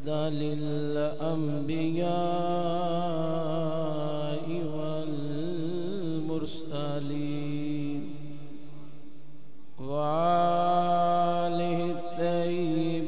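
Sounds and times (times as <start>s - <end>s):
man chanting melodically: 0.0s - 9.0s, 9.8s - 13.0s.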